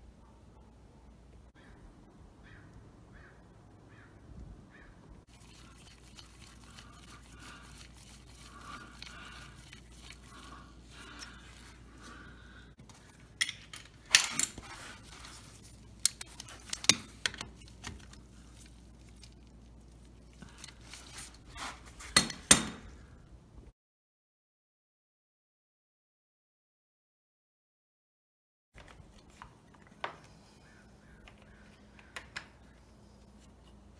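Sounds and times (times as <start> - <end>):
metal tool clinking and scraping: 5.3 - 11.8, 13.0 - 19.3, 20.1 - 22.9.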